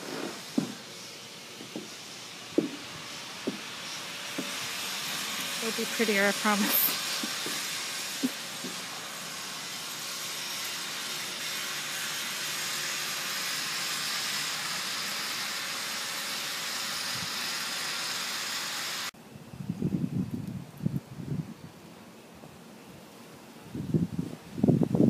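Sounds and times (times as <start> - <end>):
steady hiss: 0.0 - 25.0.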